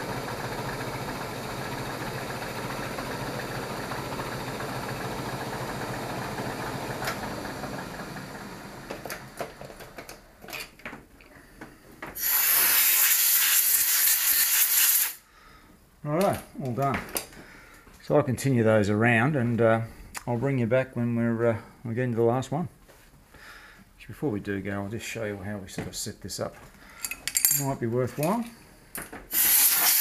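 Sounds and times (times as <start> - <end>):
air blow gun hissing: 12.2 - 15.3, 29.3 - 30.0.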